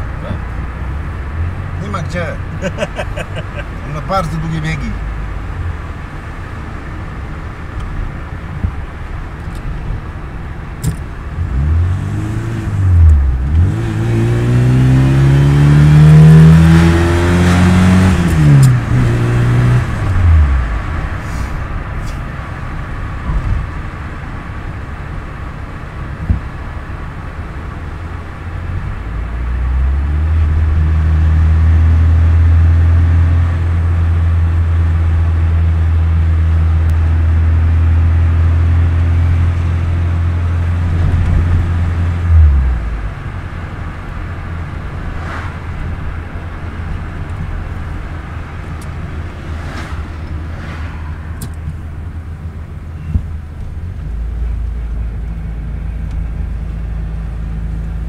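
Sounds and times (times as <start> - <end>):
car engine revving from inside: 11.4 - 20.9, 29.2 - 43.0, 45.1 - 46.0.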